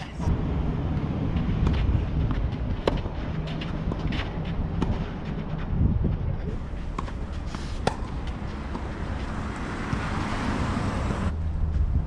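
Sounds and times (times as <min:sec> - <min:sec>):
wind buffeting microphone: 0:00.2 - 0:12.0
tennis balls struck by rackets: 0:01.4 - 0:05.7, 0:06.6 - 0:10.3.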